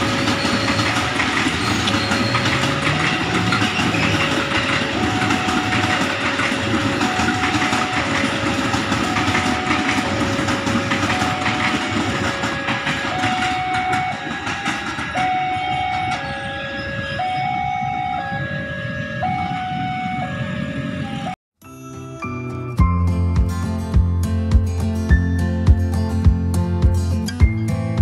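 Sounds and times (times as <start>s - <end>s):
train wheels clattering on rails: 0.0s - 17.2s
two-tone crossing alarm: 0.0s - 21.4s.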